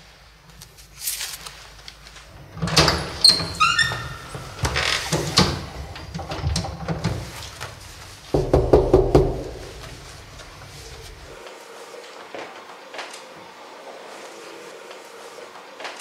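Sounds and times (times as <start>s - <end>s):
thuds and footsteps: 6.5s - 11.4s
knuckles rapping on wooden door: 8.3s - 10.0s.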